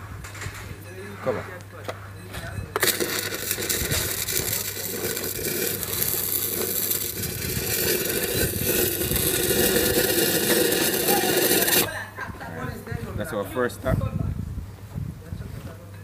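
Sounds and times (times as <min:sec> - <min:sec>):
welding arc hissing: 0:02.8 - 0:11.9.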